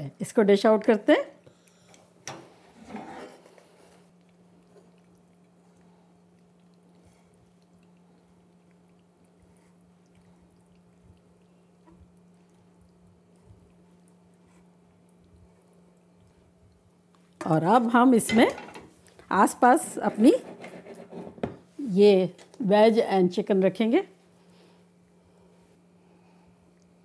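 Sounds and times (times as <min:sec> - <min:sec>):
faint low hum: 0:00.0 - 0:27.0
wet squishing of pasta: 0:03.6 - 0:17.5.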